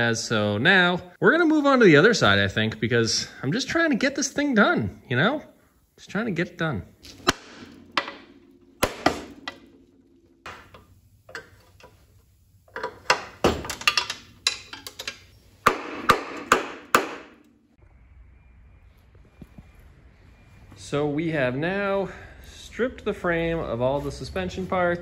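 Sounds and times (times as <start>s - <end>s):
hammer striking metal: 7.1s - 11.6s, 15.6s - 17.6s.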